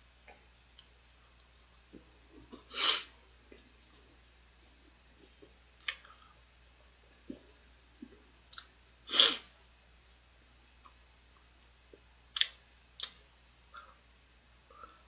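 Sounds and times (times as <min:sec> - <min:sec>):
sharp breath through nose: 0:02.7 - 0:03.2
mouth clicks of chewing: 0:05.2 - 0:06.1, 0:08.0 - 0:08.7, 0:12.3 - 0:13.2.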